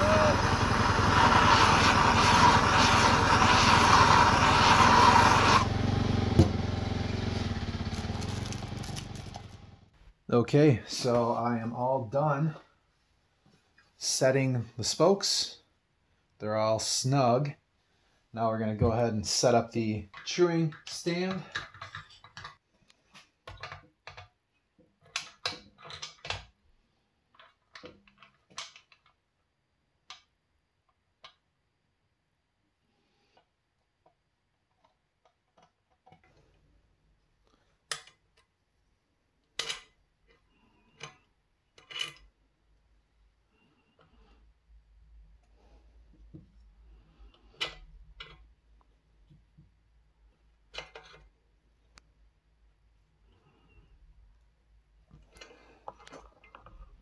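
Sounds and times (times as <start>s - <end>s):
gas torch burning: 0.0s - 5.7s.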